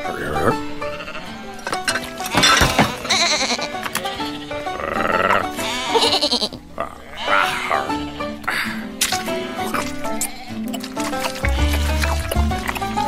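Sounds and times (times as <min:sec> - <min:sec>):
cartoon soundtrack music: 0:00.0 - 0:13.0
sheep bleating: 0:00.1 - 0:01.6, 0:02.3 - 0:08.4, 0:09.4 - 0:10.7.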